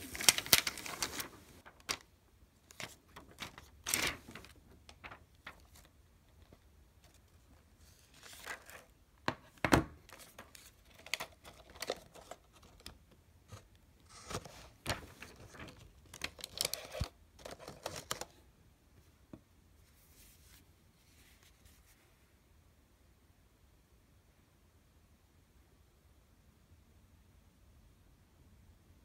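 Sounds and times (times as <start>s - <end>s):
plastic wrap crinkling: 0.0s - 2.1s, 2.7s - 5.9s.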